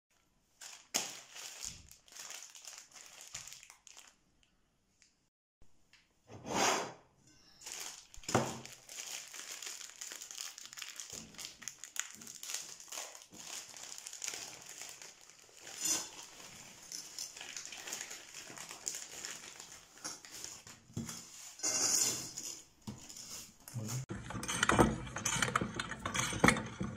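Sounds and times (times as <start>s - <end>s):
plastic packet crinkling: 0.6s - 4.3s, 7.6s - 20.9s.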